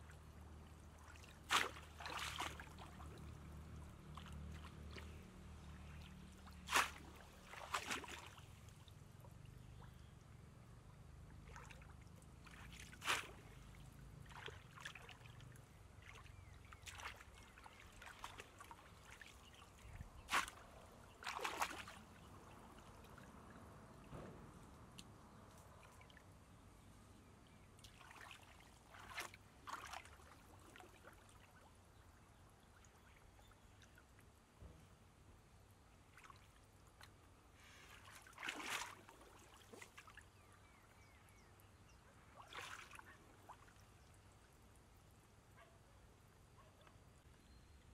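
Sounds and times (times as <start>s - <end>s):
shallow water splashing and sloshing: 0.0s - 10.1s, 11.3s - 26.6s, 27.5s - 34.7s, 36.0s - 41.6s, 42.2s - 45.0s
person wading in water: 0.1s - 8.9s, 11.4s - 23.6s, 27.8s - 31.7s, 37.6s - 40.9s, 42.3s - 44.0s.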